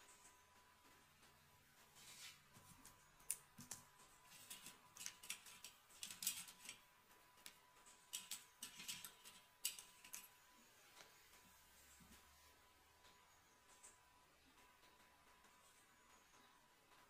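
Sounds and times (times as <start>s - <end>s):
hands handling braided hair: 2.0s - 6.8s, 7.4s - 12.3s.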